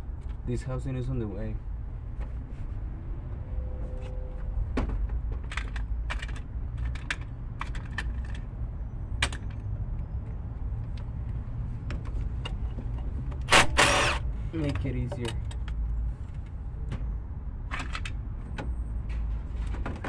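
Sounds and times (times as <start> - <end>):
power tool burst: 13.5 - 14.2.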